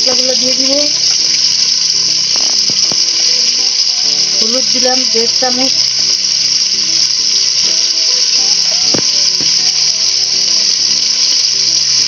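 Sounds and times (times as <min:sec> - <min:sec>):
oil and water sizzling in pot: 0:00.0 - 0:12.0.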